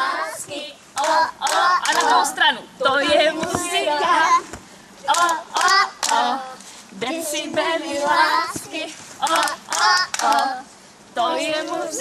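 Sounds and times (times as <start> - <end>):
woman and children singing: 0.0 - 12.0
hand claps: 1.0 - 2.2, 4.5 - 6.3, 8.6 - 10.5.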